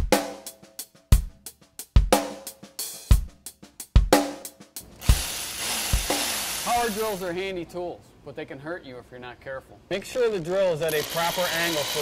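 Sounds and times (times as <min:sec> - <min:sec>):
drum kit beat: 0:00.0 - 0:07.4.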